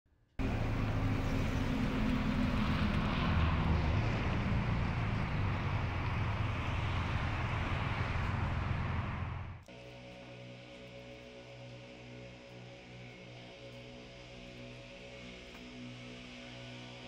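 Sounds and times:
low engine rumble: 0.4s - 9.6s.

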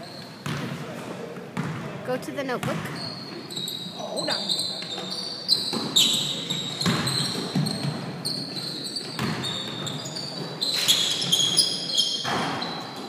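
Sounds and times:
sneakers squeaking: 0.0s - 13.0s
basketball bouncing: 0.4s - 0.8s, 1.6s - 1.9s, 2.5s - 3.3s, 5.6s - 8.2s, 9.0s - 10.5s.

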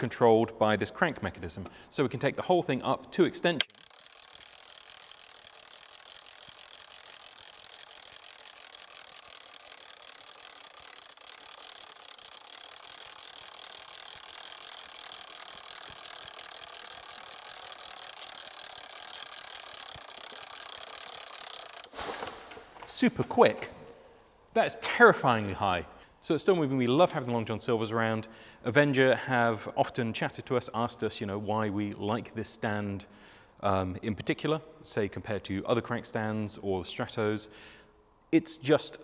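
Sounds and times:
crank gearing rattling: 3.6s - 22.9s.

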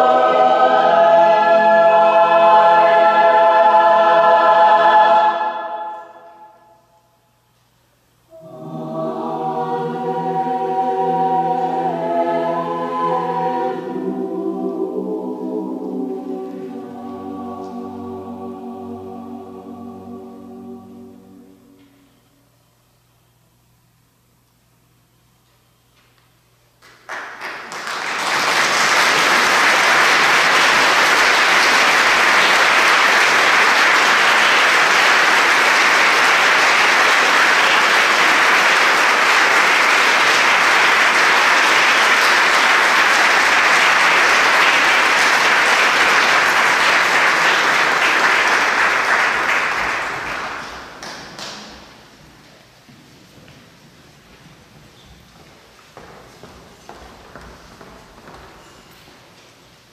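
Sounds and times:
audience applauding: 26.8s - 52.0s.

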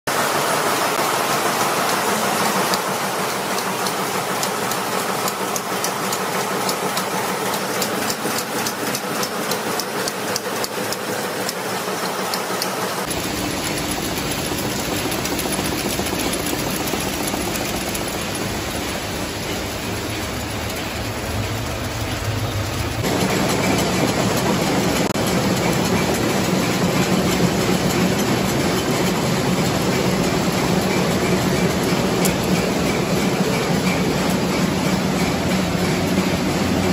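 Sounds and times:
machine rumbling: 0.1s - 36.9s
machines clattering: 0.1s - 36.9s.

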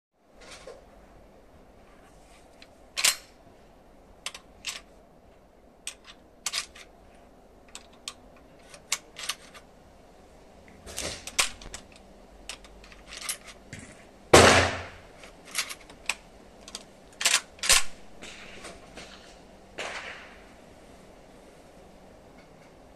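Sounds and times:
cartridges loading into rifle: 2.6s - 3.3s, 4.2s - 4.9s, 5.9s - 6.9s, 7.7s - 9.7s, 10.9s - 13.6s, 15.2s - 18.0s
echoing gunshot: 14.4s - 15.0s, 19.8s - 20.5s.

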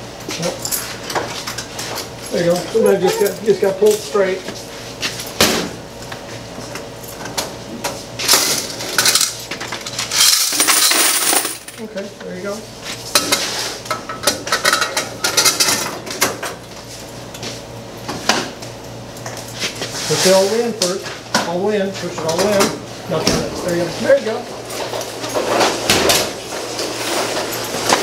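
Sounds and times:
coins clattering into bucket: 8.3s - 11.9s.

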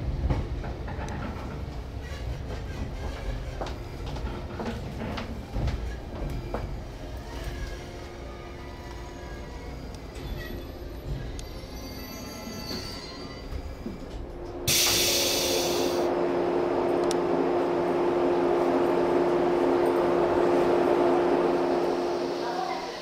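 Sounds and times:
electric train humming: 5.1s - 23.0s
sudden hiss: 14.7s - 16.1s.

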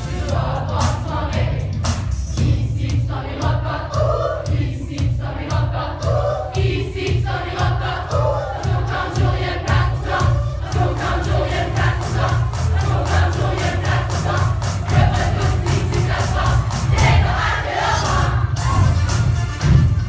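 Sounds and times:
group of voices singing: 0.0s - 19.0s.

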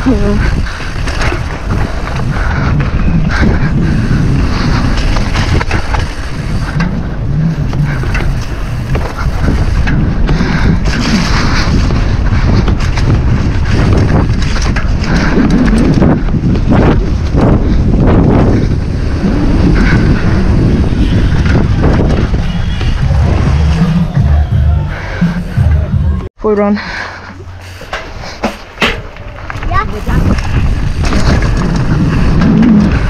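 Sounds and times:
bike knocks and rattles: 0.0s - 26.2s, 27.5s - 33.0s
low rumble: 0.0s - 26.3s
wind buffeting microphone: 0.0s - 33.0s.

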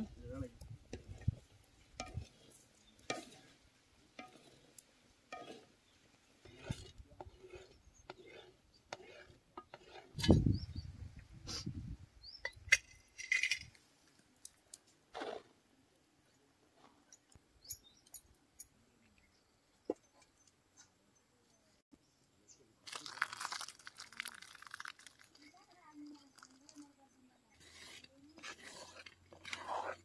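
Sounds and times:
metal utensils and pots clinking: 2.0s - 4.7s, 5.3s - 5.7s, 12.4s - 13.8s.

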